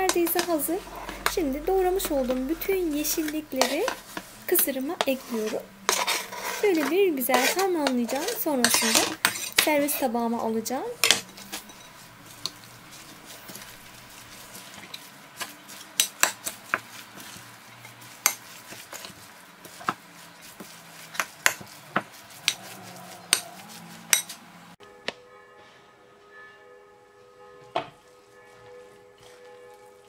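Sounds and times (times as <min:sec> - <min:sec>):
soft music: 0:00.0 - 0:09.0, 0:24.8 - 0:30.0
soft scrape of salad mixture: 0:00.0 - 0:24.8, 0:28.0 - 0:30.0
metal spoon clinking on glass: 0:11.0 - 0:12.0.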